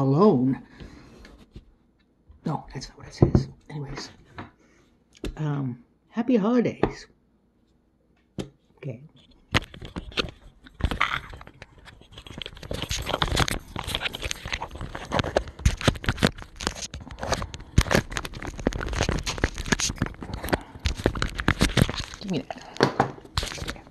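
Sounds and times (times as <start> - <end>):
fingers rubbing and knocking on phone: 9.2 - 23.9.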